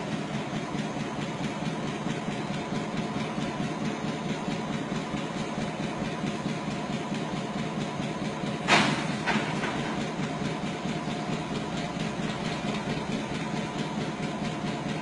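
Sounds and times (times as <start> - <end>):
locomotive running steadily: 0.0 - 15.0
sharp knock: 8.7 - 10.0.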